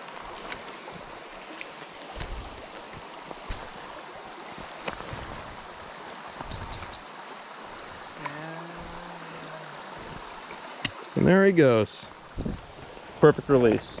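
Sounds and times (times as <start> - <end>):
stream rushing over rocks: 0.0 - 14.0.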